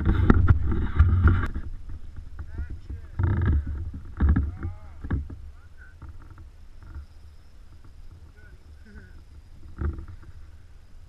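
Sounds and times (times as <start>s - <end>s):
dull knocks: 0.0s - 7.1s.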